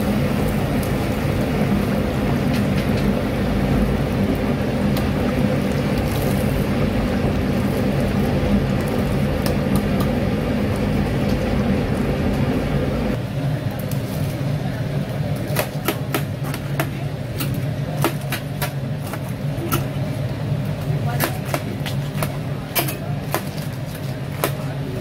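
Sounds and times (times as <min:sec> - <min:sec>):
low hum: 0:00.0 - 0:13.4
oil sizzling in deep fryer: 0:00.0 - 0:25.0.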